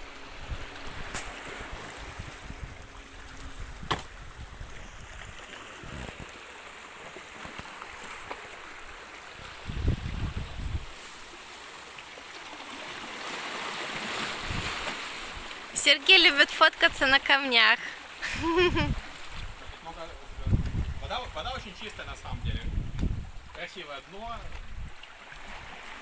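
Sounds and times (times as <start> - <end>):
sea water lapping on rocks: 0.0 - 18.2, 18.8 - 26.0
low rumble on microphone: 9.6 - 11.0.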